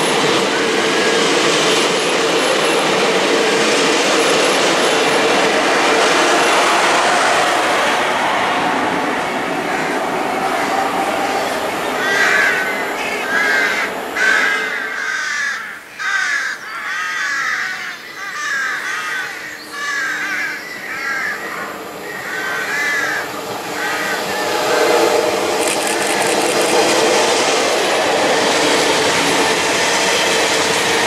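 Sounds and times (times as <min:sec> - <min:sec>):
train rumble: 0:00.0 - 0:15.9, 0:18.1 - 0:31.0
crow cawing: 0:12.0 - 0:24.3.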